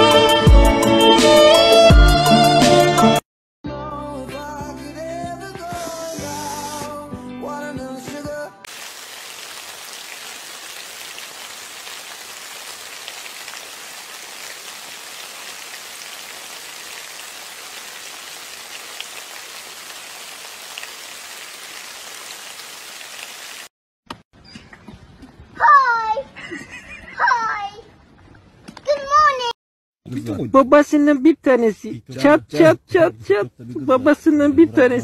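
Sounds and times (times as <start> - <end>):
rain pattering: 8.7 - 23.7.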